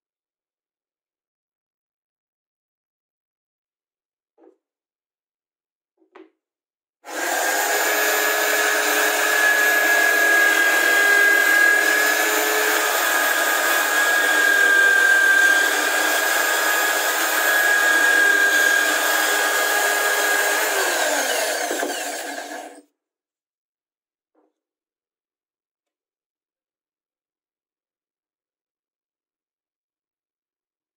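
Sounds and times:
electric drill whining: 0:07.1 - 0:22.8.

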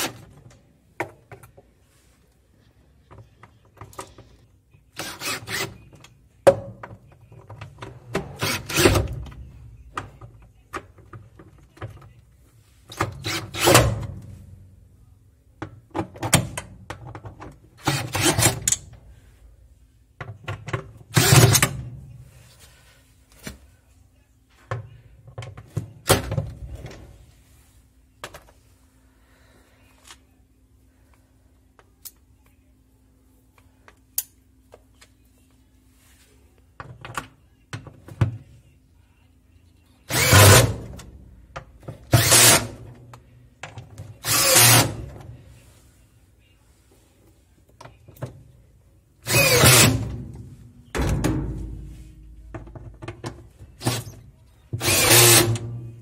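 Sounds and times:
cordless drill driving screws: 0:40.1 - 0:40.6, 0:42.2 - 0:42.6, 0:44.2 - 0:44.9, 0:49.3 - 0:49.9, 0:54.8 - 0:55.5.

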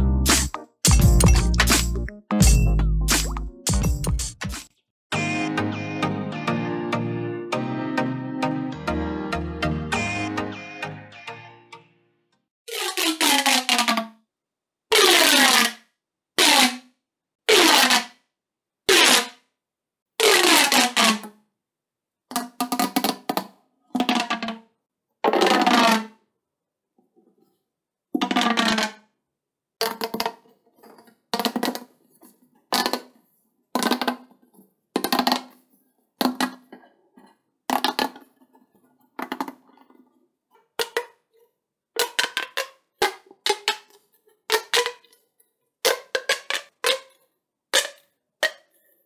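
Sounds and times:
plastic tubes snapping and rattling: 0:29.8 - 0:31.9, 0:32.7 - 0:33.1, 0:33.8 - 0:34.3, 0:35.0 - 0:35.5, 0:37.7 - 0:38.4, 0:39.2 - 0:40.0, 0:40.8 - 0:41.2, 0:42.0 - 0:45.2, 0:45.8 - 0:47.2, 0:47.8 - 0:48.7.

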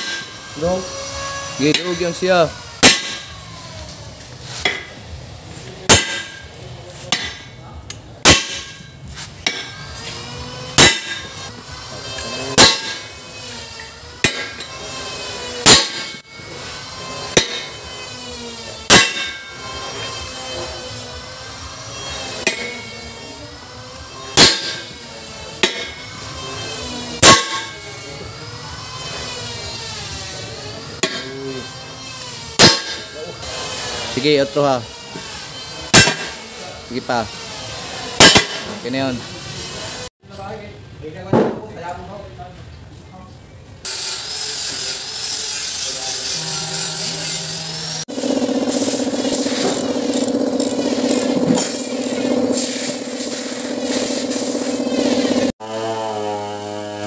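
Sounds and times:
hammer clanging on metal: 0:05.9 - 0:06.5, 0:07.1 - 0:07.5, 0:08.2 - 0:09.8, 0:10.8 - 0:11.4, 0:12.6 - 0:13.1.

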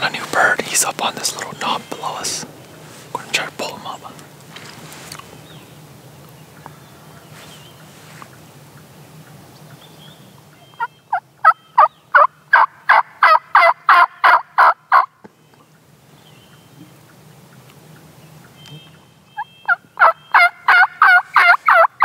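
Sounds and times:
turkey call yelps: 0:10.8 - 0:15.1, 0:19.4 - 0:22.0.

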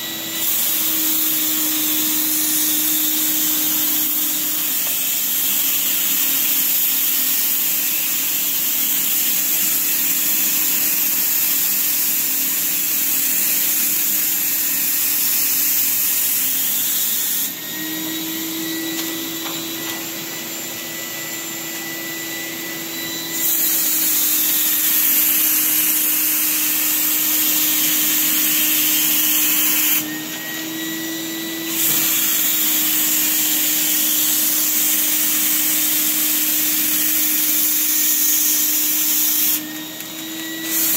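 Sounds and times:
spray gun hissing: 0:00.2 - 0:17.6, 0:23.3 - 0:30.1, 0:31.7 - 0:40.1.

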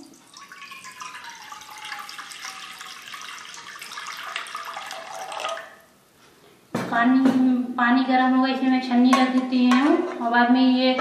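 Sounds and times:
water pouring into metal pan: 0:00.0 - 0:05.9.

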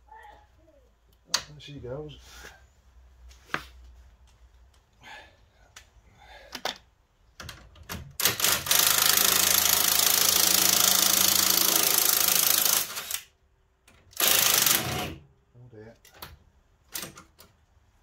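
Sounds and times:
impact wrench rattling: 0:08.1 - 0:13.2, 0:14.1 - 0:15.2.

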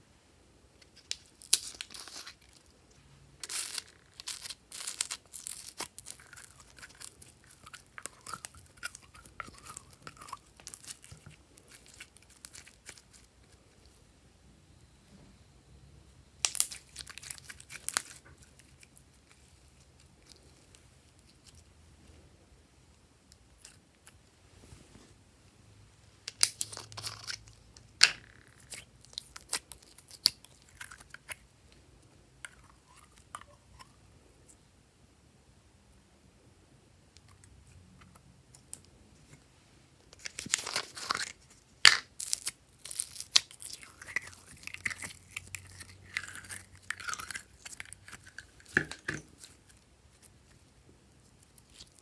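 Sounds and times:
slime crackling and popping: 0:03.4 - 0:13.8, 0:16.4 - 0:20.4, 0:26.3 - 0:31.4, 0:40.2 - 0:50.6.

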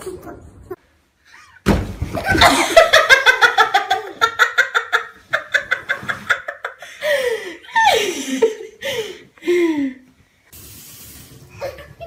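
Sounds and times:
thump: 0:01.7 - 0:02.3.

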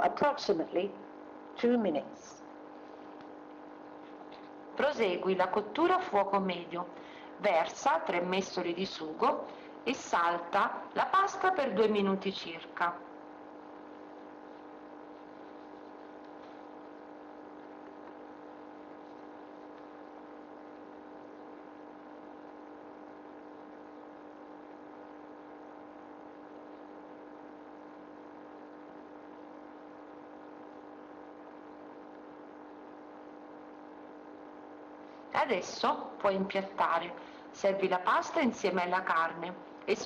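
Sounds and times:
steady mechanical hum: 0:00.0 - 0:40.0.

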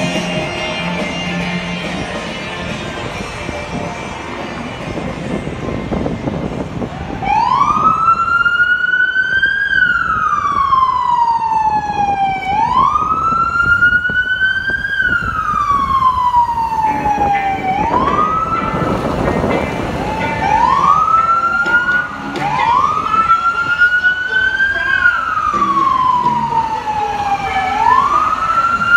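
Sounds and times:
police car siren wailing: 0:04.2 - 0:28.9.

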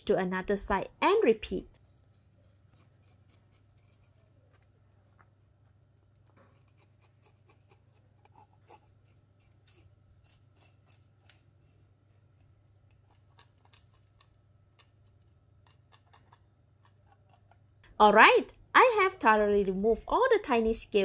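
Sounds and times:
knife scraping fish scales: 0:02.7 - 0:04.4, 0:06.5 - 0:11.6, 0:12.4 - 0:17.6.

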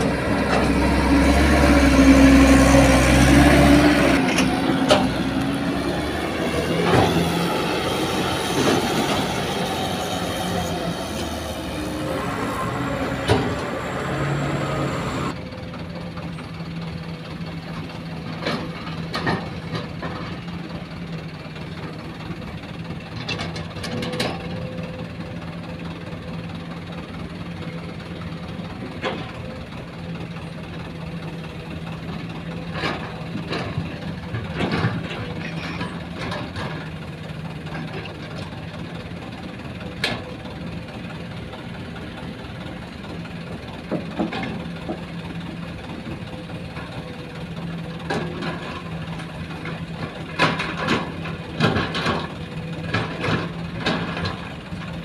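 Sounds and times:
heavy diesel engines droning: 0:00.0 - 0:55.0
knocks and clanks of work: 0:03.4 - 0:15.4, 0:17.7 - 0:20.8, 0:23.0 - 0:24.7, 0:28.5 - 0:29.8, 0:32.1 - 0:55.0.

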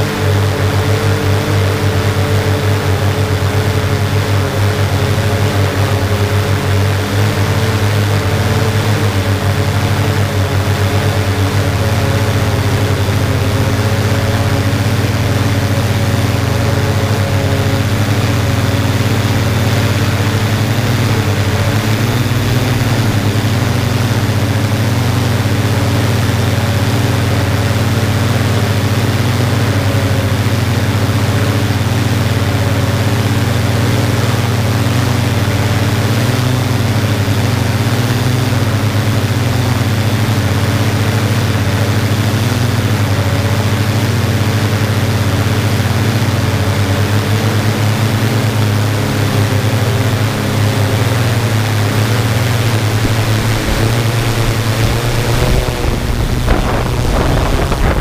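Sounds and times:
drone propellers humming: 0:00.0 - 0:58.0.

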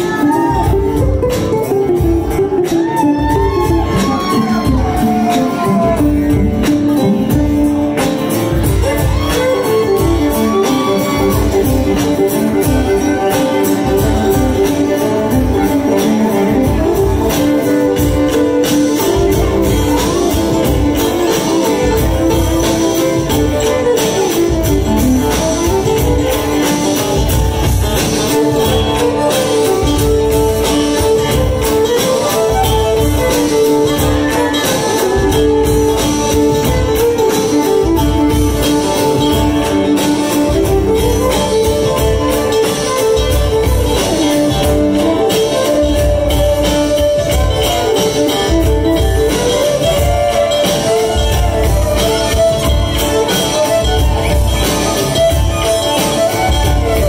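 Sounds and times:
bass-heavy beat: 0:00.0 - 0:57.0
bowed fiddle: 0:00.0 - 0:57.0
strummed acoustic guitar: 0:00.0 - 0:57.0.

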